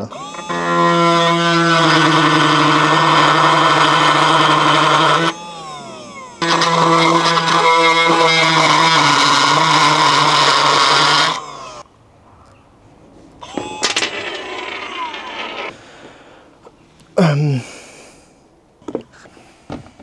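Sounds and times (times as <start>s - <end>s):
burr grinding into wood: 0.0s - 11.8s, 13.4s - 15.8s
rotary tool motor whine: 0.0s - 11.9s, 13.4s - 15.8s.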